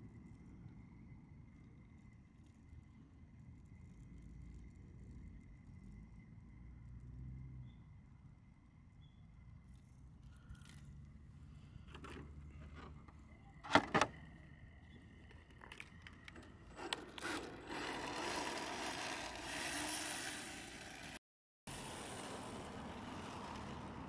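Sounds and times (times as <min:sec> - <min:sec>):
rc car driving rushing noise: 0:10.5 - 0:24.0
rc car knocking on asphalt: 0:15.2 - 0:21.2.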